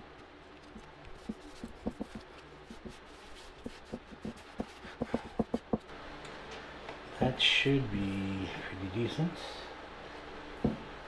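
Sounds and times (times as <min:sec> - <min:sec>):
hands tapping and rubbing tape: 0:00.2 - 0:05.9
small knocks: 0:10.6 - 0:10.9.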